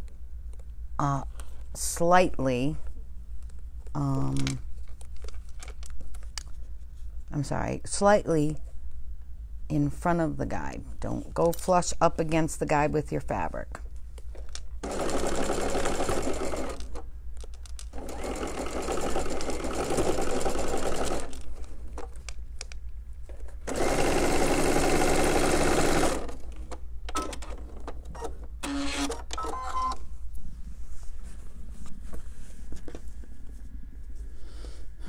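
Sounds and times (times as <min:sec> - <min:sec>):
clicks and handling sounds: 0:03.4 - 0:06.7
sewing machine stitching: 0:14.8 - 0:17.0, 0:17.9 - 0:21.4, 0:23.7 - 0:26.5.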